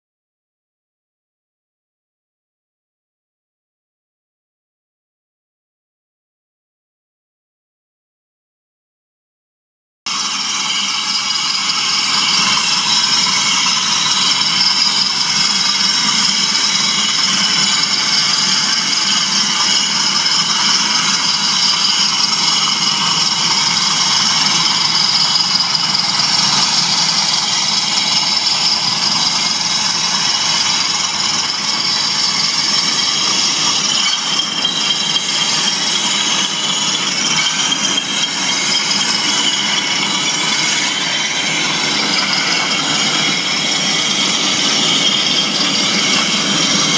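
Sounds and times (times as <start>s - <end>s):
diesel engine drone: 10.1s - 46.9s
wheels rattling over track: 10.1s - 46.9s.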